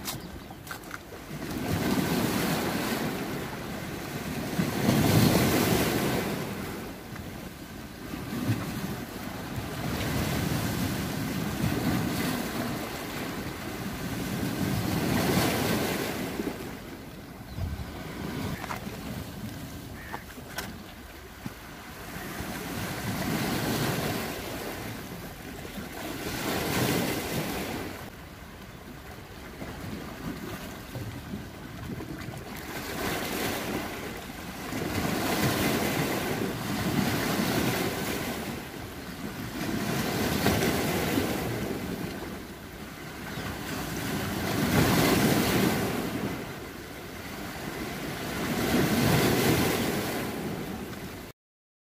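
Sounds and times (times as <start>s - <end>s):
waves washing onto rocky shore: 0.0s - 16.8s, 32.5s - 46.6s.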